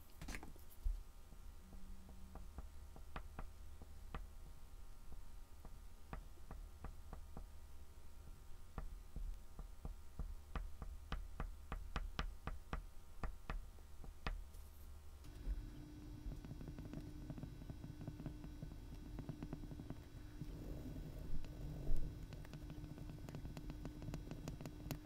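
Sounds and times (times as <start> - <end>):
oil pastel tapping on board: 1.7 - 4.4, 5.1 - 7.5, 8.7 - 14.5, 16.2 - 20.0, 21.4 - 25.0.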